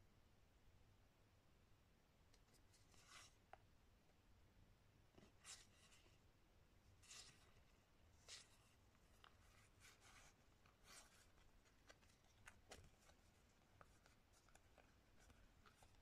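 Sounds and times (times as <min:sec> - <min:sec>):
playing cards rustling: 0:07.0 - 0:16.0.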